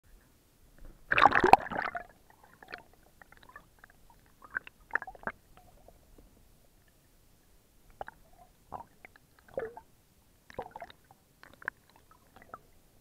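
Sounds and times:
underwater bubbling and gurgles: 0:00.8 - 0:07.2, 0:07.8 - 0:13.0
underwater water burst: 0:01.1 - 0:02.8.

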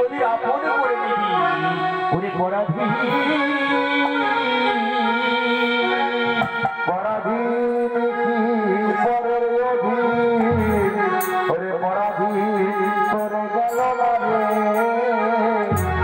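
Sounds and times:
wavering melody line: 0:10.1 - 0:11.6, 0:12.4 - 0:16.0.

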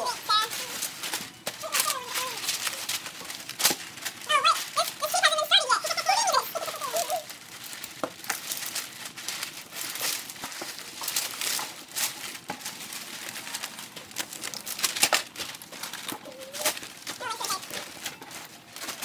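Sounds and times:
wrapping paper crinkling: 0:00.0 - 0:19.0.

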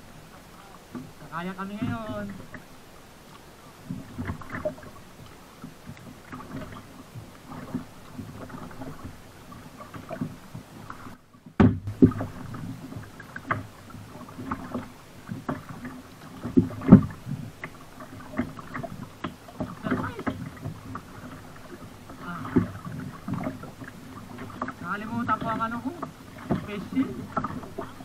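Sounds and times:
paddle blades splashing: 0:00.0 - 0:28.0
low thumps against hull: 0:00.9 - 0:02.7, 0:09.9 - 0:28.0.

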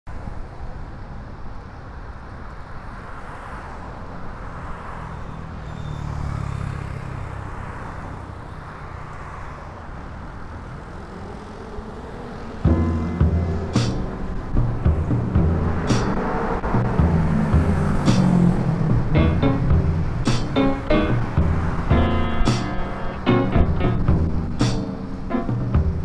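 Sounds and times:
road and wind rumble: 0:00.1 - 0:26.0
vehicle engine: 0:10.2 - 0:26.0
music: 0:12.7 - 0:26.0.

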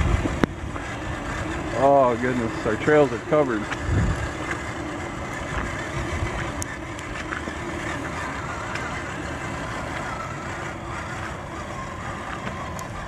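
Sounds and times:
electric motor whining: 0:00.0 - 0:13.0
water splashing under tyres: 0:00.0 - 0:13.0.

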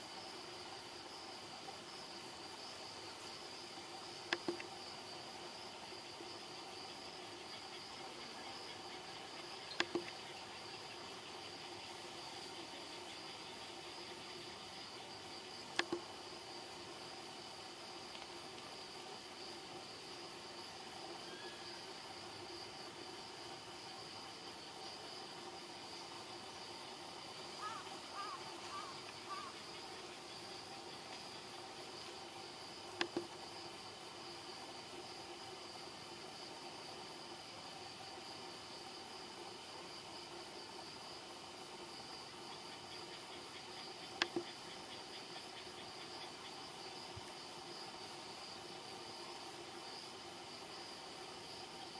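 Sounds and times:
crickets and insects chirping: 0:00.0 - 0:51.9.

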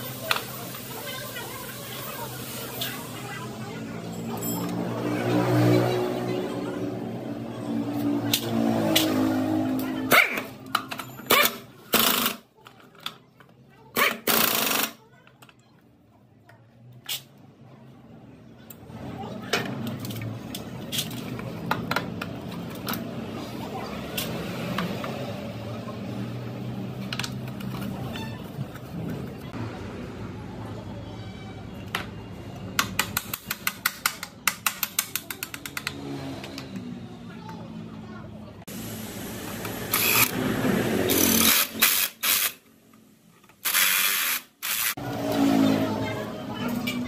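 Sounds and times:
impact driver bursts: 0:43.6 - 0:45.0.

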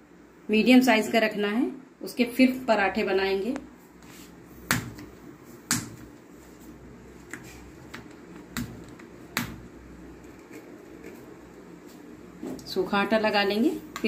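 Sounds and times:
hands tapping dough on board: 0:04.7 - 0:05.1, 0:05.7 - 0:06.1.

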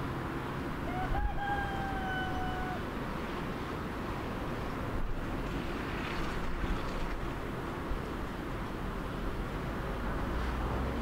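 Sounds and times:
rooster crowing: 0:00.8 - 0:02.9.

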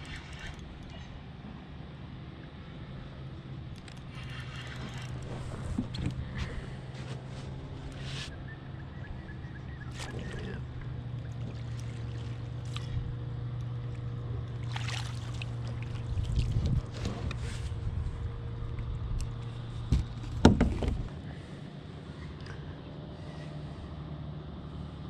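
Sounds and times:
steady low hum: 0:00.0 - 0:25.0
landing net splash: 0:14.6 - 0:16.1
knocks against kayak hull: 0:19.9 - 0:21.1.

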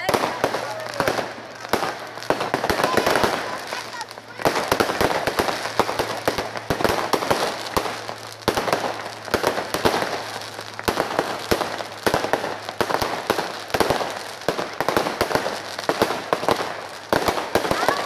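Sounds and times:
fireworks bangs and crackling: 0:00.0 - 0:18.0.

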